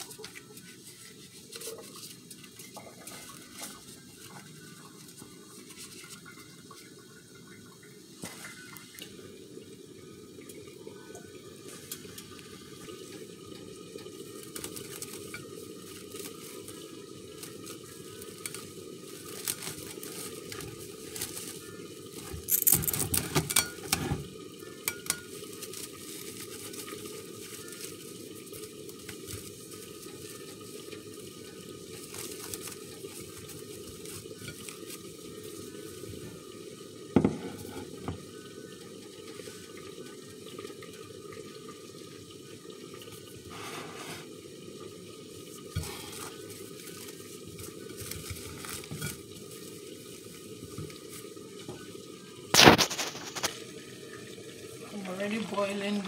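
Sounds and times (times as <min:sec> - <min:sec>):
cling film crinkling: 0:14.0 - 0:23.4, 0:25.0 - 0:36.0, 0:46.0 - 0:51.4, 0:52.5 - 0:53.7.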